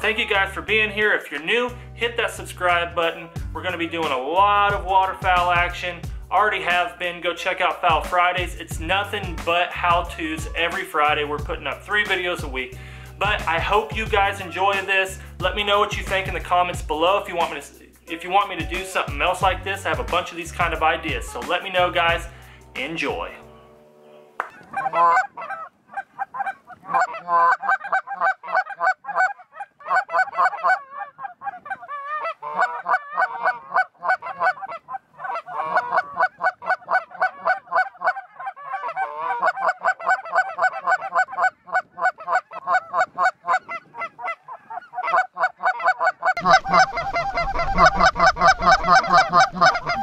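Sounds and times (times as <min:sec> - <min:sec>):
geese honking: 0:13.2 - 0:50.0
wind rumble on microphone: 0:42.8 - 0:44.8.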